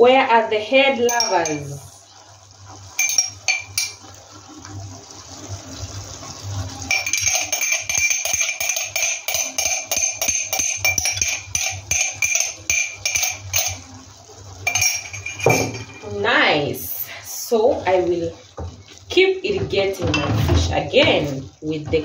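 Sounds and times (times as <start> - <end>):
spoon clinking on ringing jar: 1.1 - 1.8, 3.0 - 4.0, 6.9 - 13.8, 14.6 - 16.1.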